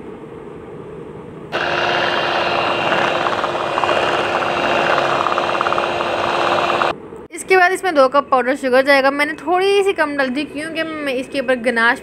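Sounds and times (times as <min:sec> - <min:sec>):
electric hand mixer whirring: 0:01.5 - 0:06.9.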